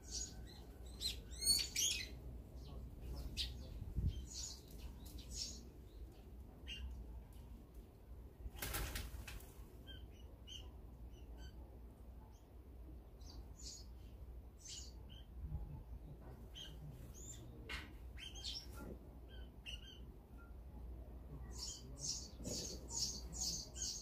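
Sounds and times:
small birds chirping: 0:00.0 - 0:07.4, 0:09.8 - 0:20.5, 0:21.3 - 0:24.0
wings flapping: 0:08.5 - 0:09.6.

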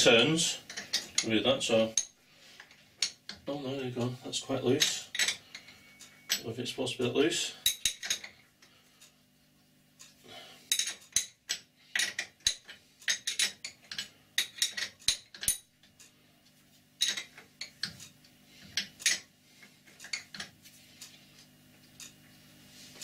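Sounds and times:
spanner clinking on metal nut: 0:04.8 - 0:06.4, 0:10.7 - 0:15.7, 0:17.0 - 0:18.0.

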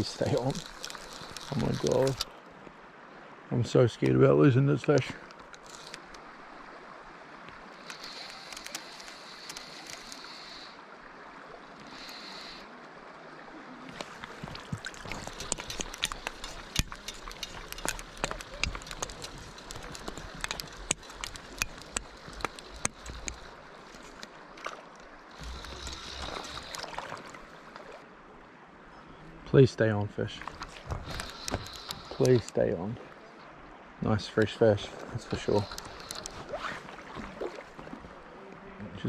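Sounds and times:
fishing gear clicks and knocks: 0:00.0 - 0:02.4, 0:04.9 - 0:06.2, 0:07.8 - 0:10.2, 0:13.9 - 0:24.8, 0:25.4 - 0:27.3, 0:30.4 - 0:32.6, 0:34.3 - 0:38.2
river water rushing: 0:00.0 - 0:28.9, 0:30.2 - 0:39.0.

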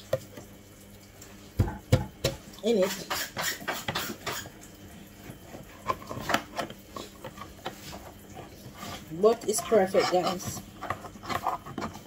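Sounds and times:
kitchen utensils clinking: 0:09.2 - 0:10.7.

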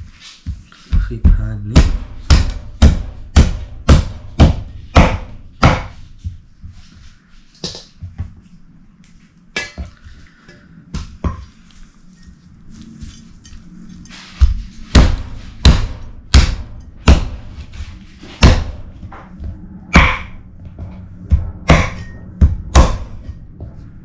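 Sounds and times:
sharp chopping knocks: 0:20.0 - 0:20.4.

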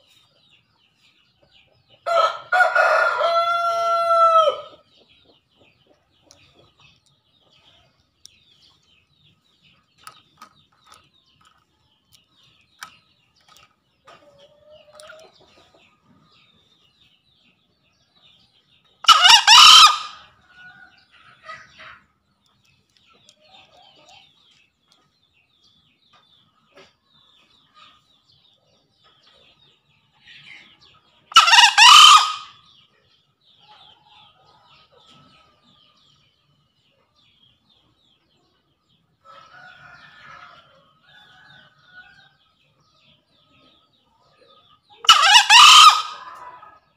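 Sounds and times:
small birds chirping: 0:00.0 - 0:02.4, 0:04.6 - 0:46.9
junglefowl crowing: 0:02.1 - 0:04.7, 0:19.1 - 0:20.9, 0:31.3 - 0:32.6, 0:45.0 - 0:46.8.

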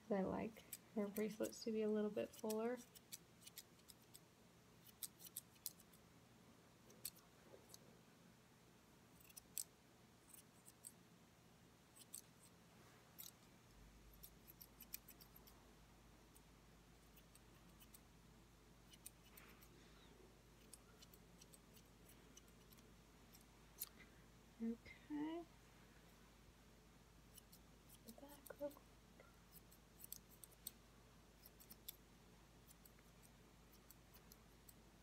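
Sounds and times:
shears snipping fur: 0:00.5 - 0:04.2, 0:04.8 - 0:06.0, 0:27.3 - 0:28.8, 0:29.5 - 0:30.8.

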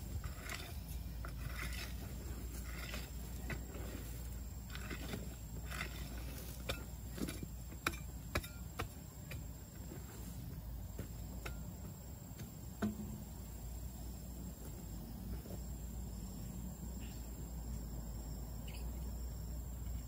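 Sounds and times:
high insect trill: 0:00.0 - 0:20.0
hoe chopping into soil: 0:00.1 - 0:13.3.

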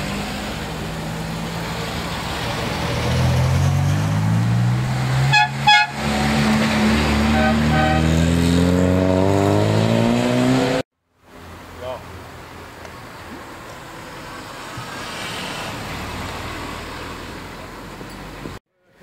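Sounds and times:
car engine revving: 0:00.0 - 0:10.8
car horn toots: 0:05.2 - 0:06.1, 0:07.2 - 0:08.3.

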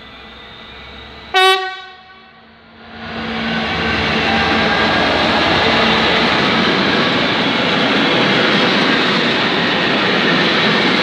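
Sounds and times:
diesel locomotive engine: 0:00.0 - 0:11.0
train horn blast: 0:01.3 - 0:02.5
train wheels on rails: 0:02.8 - 0:11.0.

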